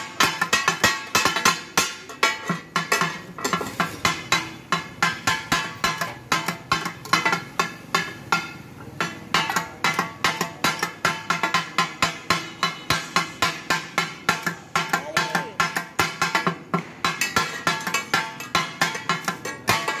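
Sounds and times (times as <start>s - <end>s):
metal spatulas striking griddle: 0.0s - 20.0s.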